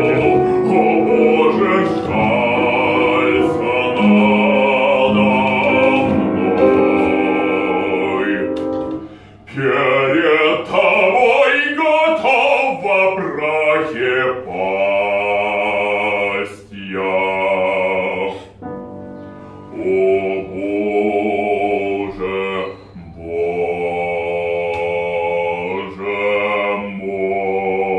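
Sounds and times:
operatic singing: 0.0 - 18.8, 19.6 - 27.9.

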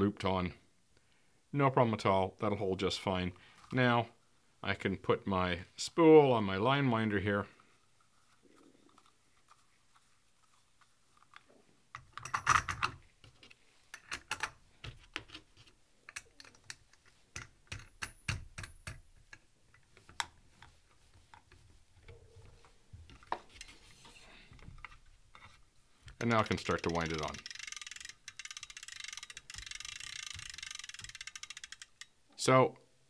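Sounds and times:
clicks and knocks of handling reel: 24.5 - 32.2.

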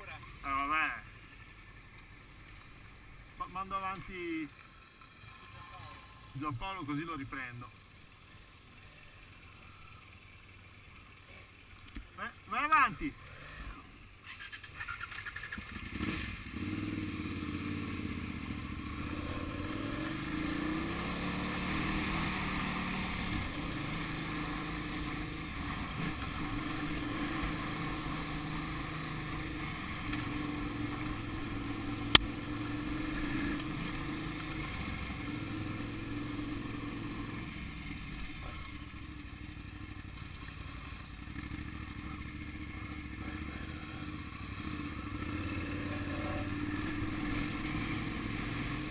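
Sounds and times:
motorcycle engine revving: 13.5 - 48.9.

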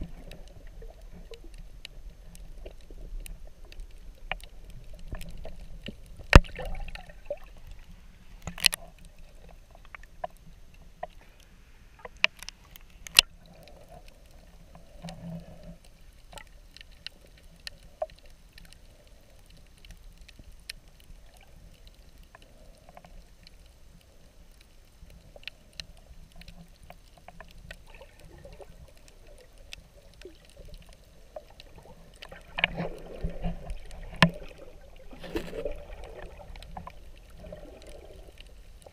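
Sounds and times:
sharp underwater clicks: 0.0 - 7.7, 8.3 - 15.3, 24.5 - 38.9
muffled underwater wash: 0.0 - 38.9
water movement: 0.0 - 38.9.

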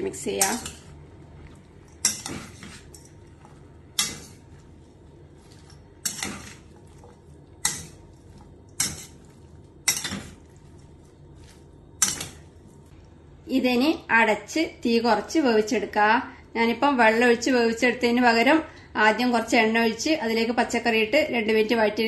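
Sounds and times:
vegetables shuffling in pan: 0.0 - 13.0
spoon clanking on metal pan: 2.0 - 3.2, 3.9 - 4.4, 6.0 - 6.6, 7.6 - 8.0, 8.7 - 9.2, 9.8 - 10.5, 12.0 - 12.4.

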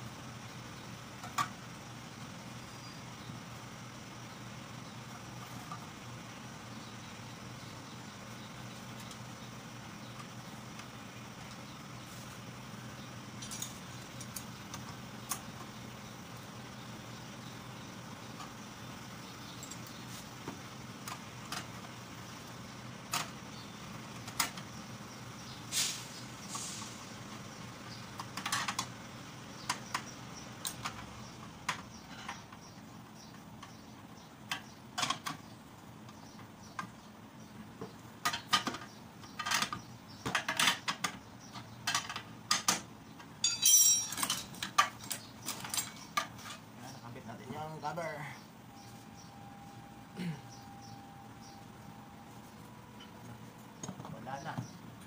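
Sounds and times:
tools and metal parts clicking: 13.4 - 14.5, 43.4 - 46.6
steady low hum: 43.0 - 55.0
short metallic rattle: 43.4 - 46.6.

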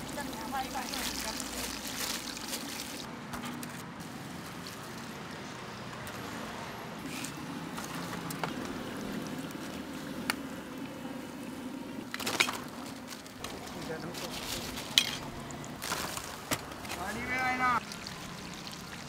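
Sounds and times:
deep-frying sizzle in hot oil: 0.0 - 3.1, 17.8 - 19.0.

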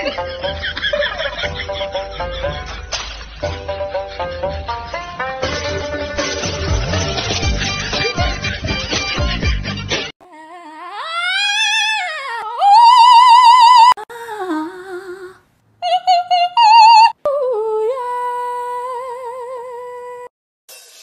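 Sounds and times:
high singing voice with vibrato: 10.2 - 20.3.

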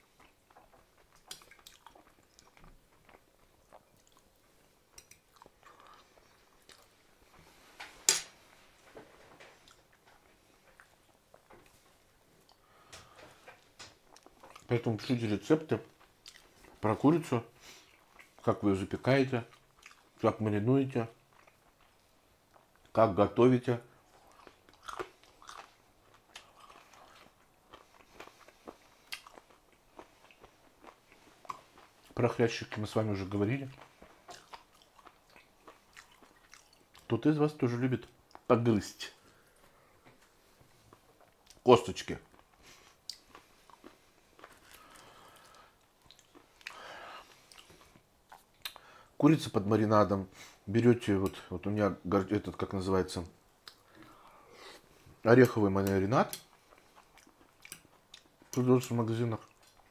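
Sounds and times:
person chewing chicken: 0.0 - 7.0, 16.0 - 16.8, 19.5 - 20.1, 24.1 - 32.2, 33.7 - 37.1, 42.3 - 49.0, 56.3 - 58.6, 59.4 - 59.9
close chewing and mouth noises: 0.0 - 49.7, 50.4 - 59.9.

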